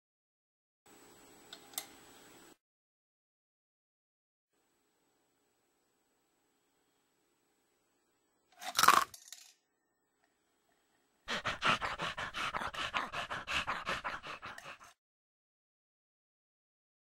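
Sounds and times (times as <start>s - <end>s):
dog panting: 11.3s - 15.0s.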